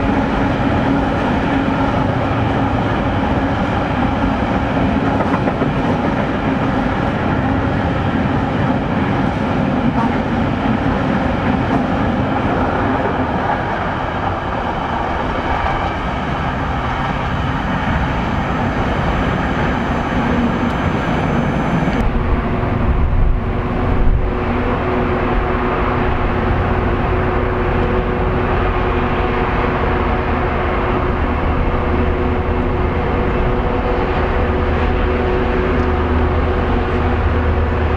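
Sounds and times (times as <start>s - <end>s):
freight train rolling past: 0.0s - 37.9s
deep rumble: 19.9s - 37.9s.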